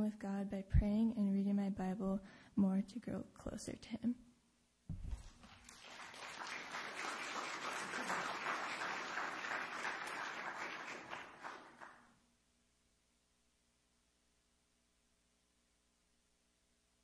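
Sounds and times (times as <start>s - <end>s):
low thump: 4.9s - 5.2s
congregation applauding: 5.2s - 12.1s.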